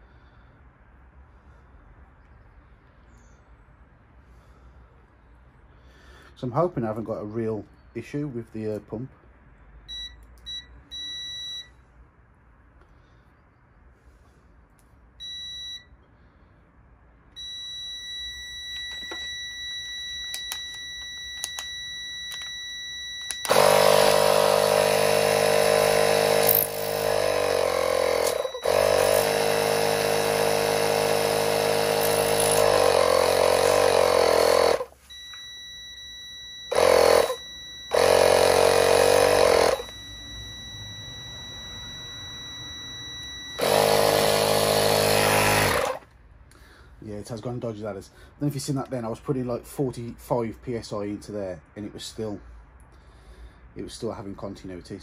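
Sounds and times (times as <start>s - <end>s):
multimeter continuity beep: 9.9s - 11.8s, 15.2s - 15.9s, 17.3s - 45.9s
electric air pump running: 23.4s - 35.2s, 36.7s - 46.0s.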